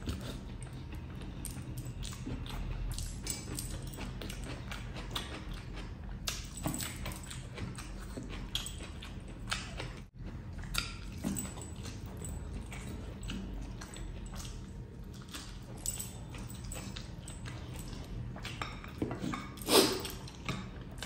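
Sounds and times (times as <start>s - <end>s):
person chewing with wet smacking: 0.0s - 21.0s.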